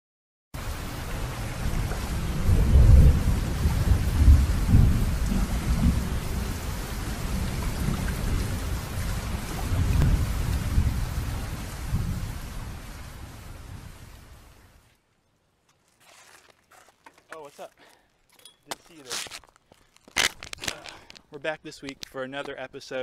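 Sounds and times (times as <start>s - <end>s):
steady rain: 0.6s - 15.1s
thunder rumbling: 0.7s - 14.6s.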